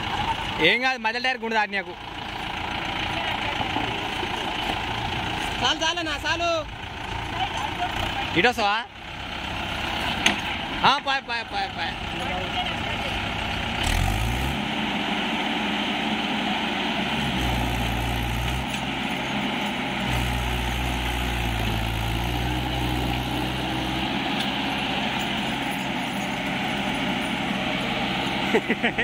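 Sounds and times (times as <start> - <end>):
tractor diesel engine under load: 0.0 - 29.0.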